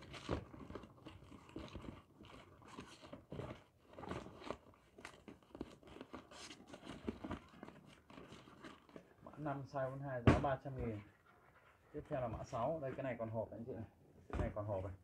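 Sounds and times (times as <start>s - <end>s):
shoe packaging crackling: 0.0s - 9.8s.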